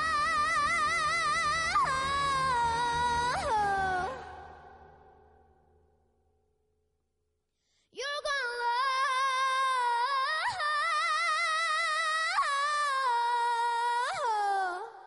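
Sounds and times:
girl singing unaccompanied: 0.0s - 4.6s, 8.0s - 15.0s.

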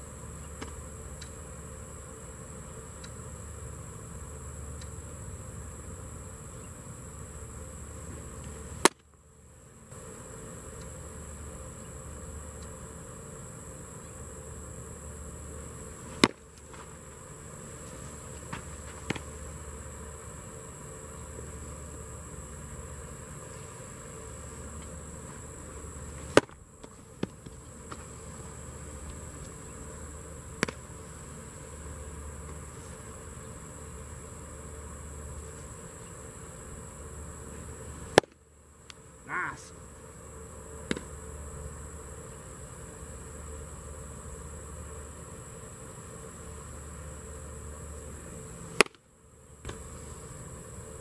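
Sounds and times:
high insect drone: 0.0s - 51.0s
baseball smacking into mitt: 0.6s - 0.8s, 8.8s - 9.1s, 16.1s - 17.0s, 18.0s - 19.4s, 26.1s - 28.2s, 30.5s - 31.0s, 38.1s - 39.0s, 40.8s - 41.1s, 48.8s - 49.0s, 49.6s - 49.9s.

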